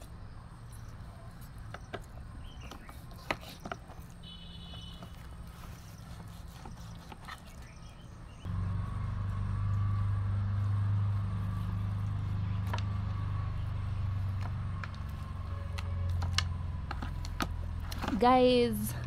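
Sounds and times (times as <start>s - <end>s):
low engine hum: 3.8s - 19.0s.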